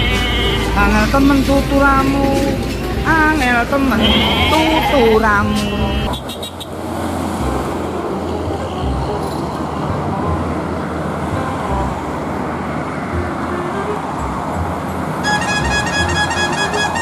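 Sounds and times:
highway traffic passing: 0.0 - 17.0.

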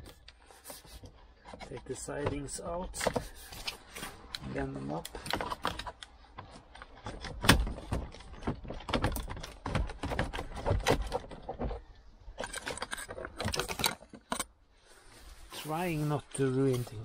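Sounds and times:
plastic trim clicks and rattles: 5.0 - 14.5.

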